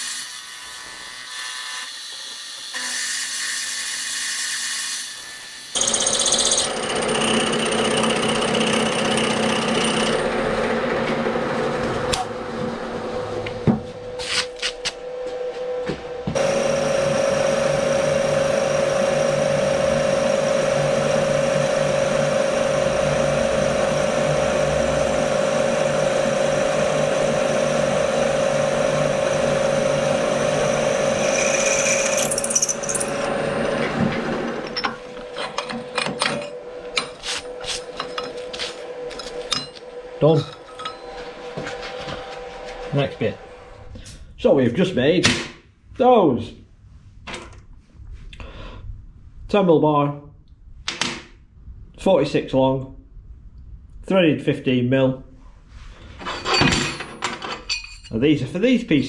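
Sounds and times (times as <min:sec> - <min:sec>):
milling machine cutting metal: 0:00.0 - 0:11.1, 0:16.4 - 0:41.2.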